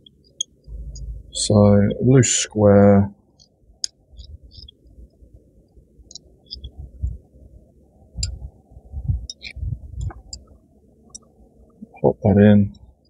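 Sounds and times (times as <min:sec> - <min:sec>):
soft low bumps: 0:00.7 - 0:02.1, 0:06.5 - 0:07.3, 0:08.2 - 0:10.5.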